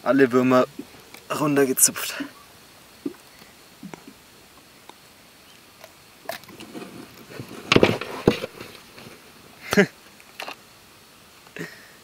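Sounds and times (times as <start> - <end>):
handling knocks and rustles: 6.3 - 9.3.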